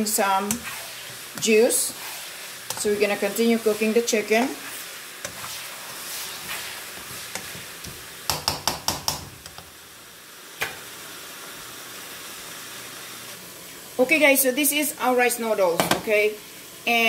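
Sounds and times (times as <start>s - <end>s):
chicken sizzling in skillet: 0.0s - 17.0s
spatula scraping and tapping pan: 0.4s - 9.7s.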